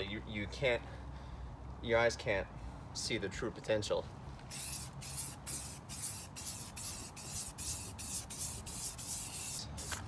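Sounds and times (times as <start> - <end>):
spray can hissing in bursts: 4.5 - 10.0.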